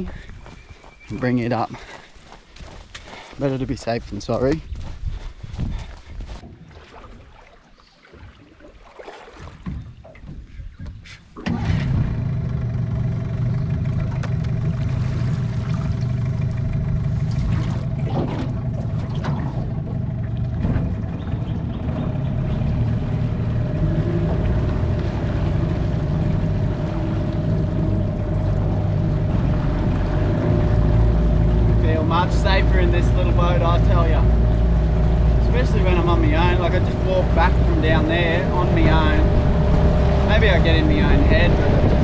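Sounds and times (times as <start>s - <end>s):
outboard motor running: 11.4s - 42.0s.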